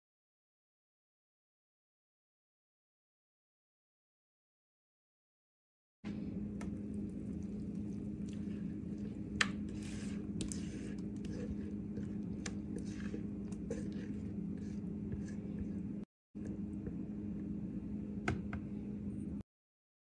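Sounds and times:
low hum: 6.1 - 19.4
batter squishing into tray: 6.6 - 15.9.

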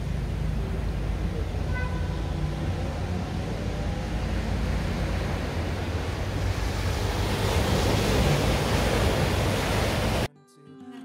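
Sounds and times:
water rushing through channel: 0.0 - 10.3.

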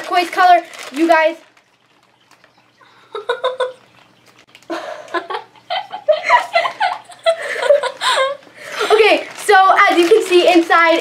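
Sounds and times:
girls giggling and laughing: 3.0 - 3.8, 4.7 - 9.0.

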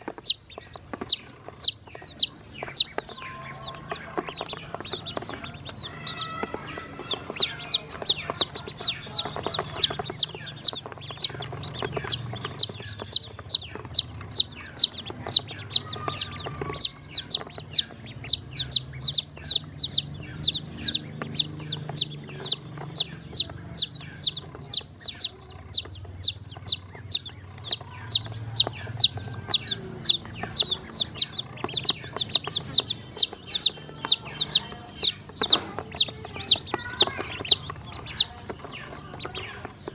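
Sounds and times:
chicks and ducklings peeping: 0.0 - 39.9.

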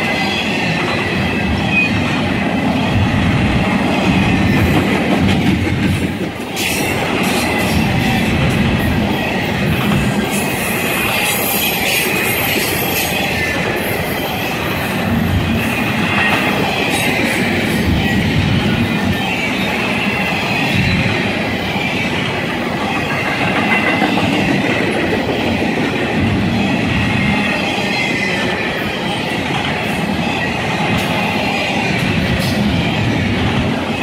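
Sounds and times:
freight train wheels rumbling: 0.0 - 34.0
high wheel squeal: 10.3 - 14.9.

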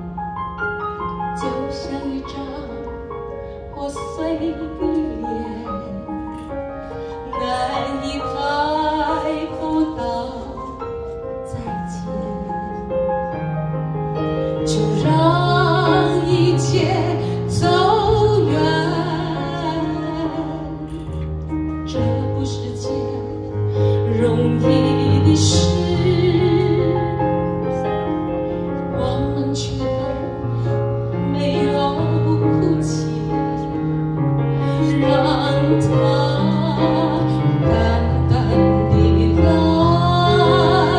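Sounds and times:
woman singing a ballad: 1.2 - 13.4, 14.5 - 34.0, 34.6 - 40.9
instrumental accompaniment with bass: 4.9 - 40.9.

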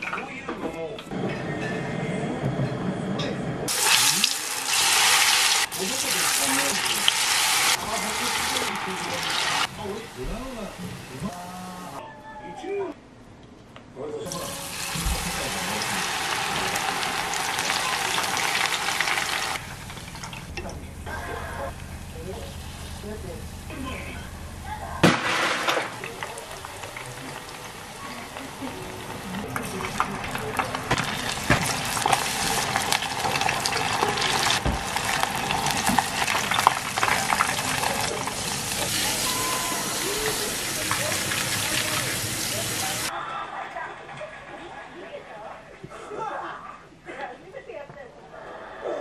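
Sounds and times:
mushrooms deep-frying in oil: 3.7 - 12.0, 14.3 - 43.1.

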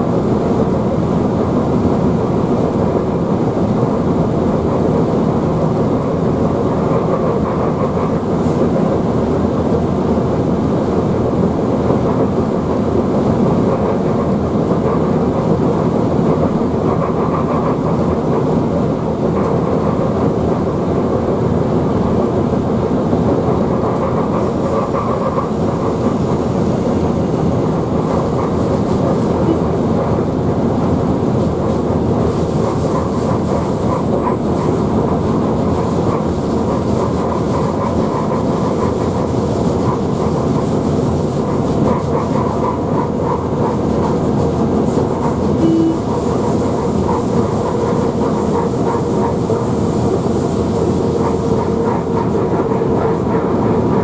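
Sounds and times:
wheels rumbling on rail: 0.0 - 54.0
short tone: 29.4 - 29.7, 45.6 - 46.1.

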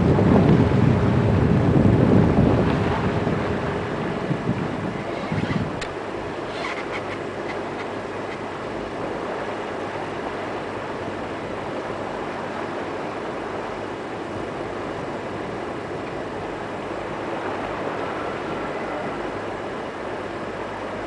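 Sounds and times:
boat engine droning: 0.0 - 21.0
water rushing along hull: 0.0 - 21.0.

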